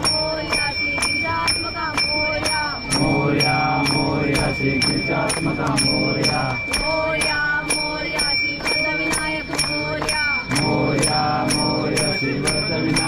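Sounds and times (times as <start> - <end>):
metal bell struck: 0.0 - 13.0
group of voices chanting: 2.9 - 7.4, 10.5 - 13.0.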